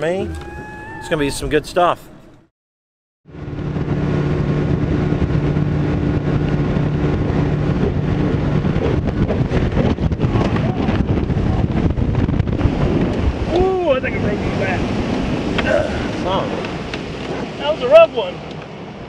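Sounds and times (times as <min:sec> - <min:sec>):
outboard motor drone: 0:00.0 - 0:02.4, 0:03.3 - 0:19.0
rough rushing noise with knocks: 0:03.3 - 0:17.8
wind on microphone: 0:03.3 - 0:19.0.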